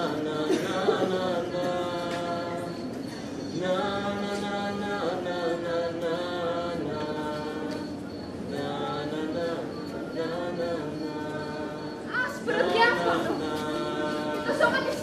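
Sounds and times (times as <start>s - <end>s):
person singing unaccompanied: 0.0s - 15.0s.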